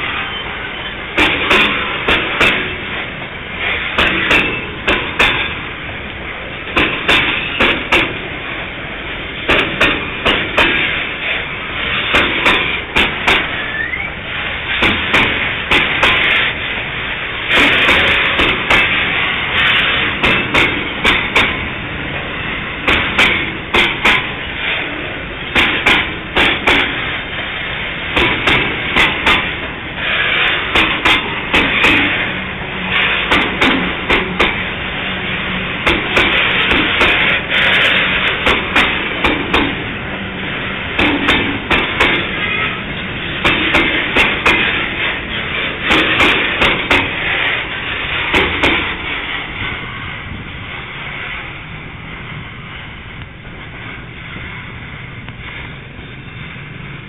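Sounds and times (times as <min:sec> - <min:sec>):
freight train rumble: 0:00.0 - 0:57.0
train wheels clacking on rail joints: 0:00.0 - 0:57.0
scraping noise: 0:17.4 - 0:27.1, 0:28.1 - 0:51.4.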